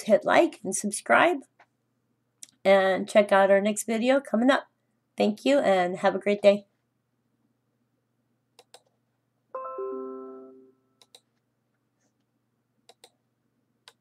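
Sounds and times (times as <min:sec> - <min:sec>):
computer mouse clicks: 0:08.6 - 0:09.0, 0:11.0 - 0:11.4, 0:12.8 - 0:13.2
two-note falling electronic chime: 0:09.6 - 0:11.0.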